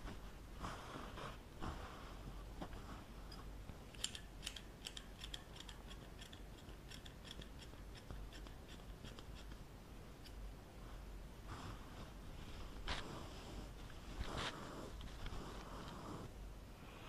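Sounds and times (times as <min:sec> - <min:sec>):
scissors snipping hair: 0:03.9 - 0:09.6.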